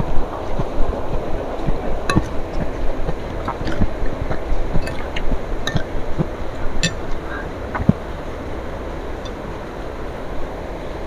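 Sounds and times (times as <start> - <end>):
steady low rumble: 0.0 - 11.0
cutlery clinking on ceramic plate: 6.8 - 7.1.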